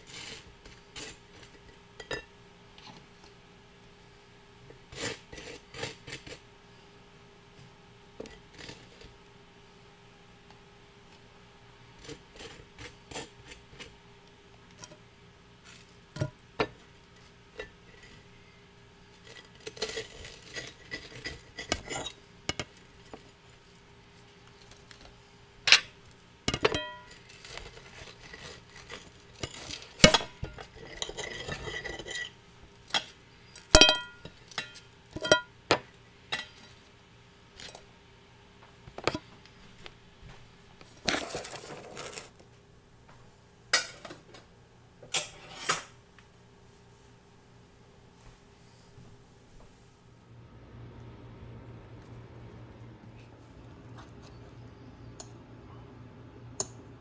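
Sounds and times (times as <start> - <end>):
ceramic plates clinking: 26.5 - 27.2, 33.8 - 35.5
scraping and shuffling: 38.6 - 44.4.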